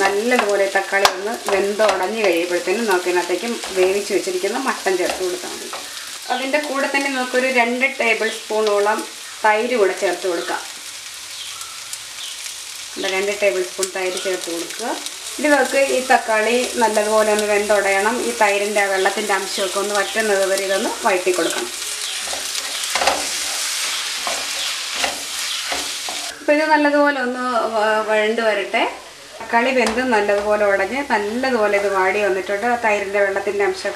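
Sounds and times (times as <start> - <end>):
vegetables sizzling in a wok: 0.0 - 33.9
spatula scraping a wok: 0.2 - 6.2, 15.1 - 26.4.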